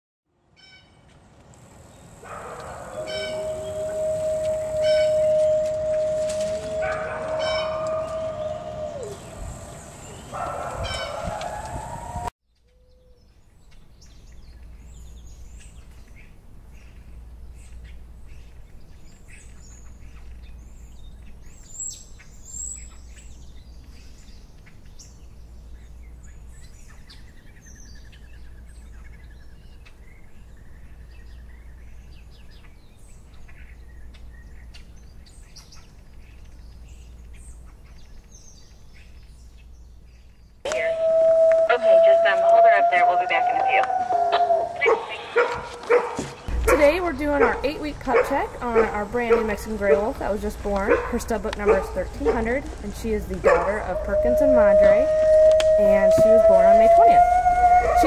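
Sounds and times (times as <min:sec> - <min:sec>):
low outdoor rumble: 0:01.1 - 0:45.1, 0:46.4 - 0:58.0
birds chirping and calling: 0:02.0 - 0:12.0, 0:12.6 - 0:58.0
wolf howling: 0:02.2 - 0:12.3, 0:40.7 - 0:46.0, 0:53.3 - 0:58.0
trilling bird call: 0:02.2 - 0:13.3, 0:40.7 - 0:45.6, 0:52.2 - 0:58.0.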